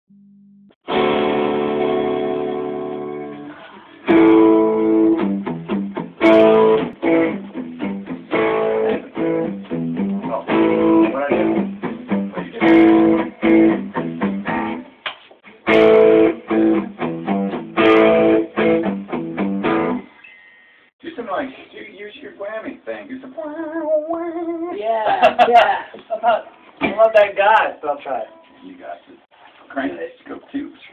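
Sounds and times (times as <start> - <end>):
electric guitar playing: 0.8 - 14.9, 15.5 - 20.1.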